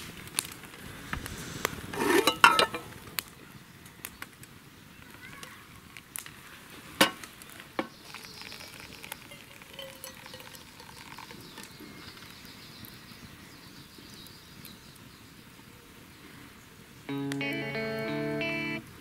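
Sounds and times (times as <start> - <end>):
water trickling into coffee filter: 7.7 - 13.0.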